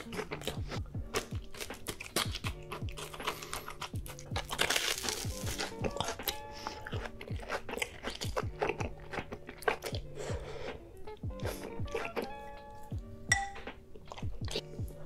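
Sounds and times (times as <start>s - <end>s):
crunchy biting and chewing: 0.0s - 10.8s, 11.4s - 12.4s
music with deep beat: 0.0s - 15.0s.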